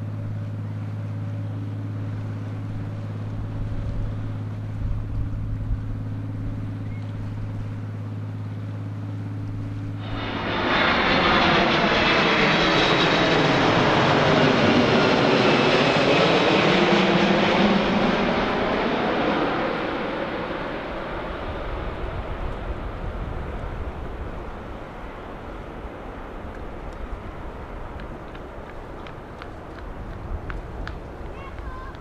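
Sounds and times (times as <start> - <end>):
jet airliner passing overhead: 0.0 - 32.0
steady low engine hum: 0.0 - 32.0.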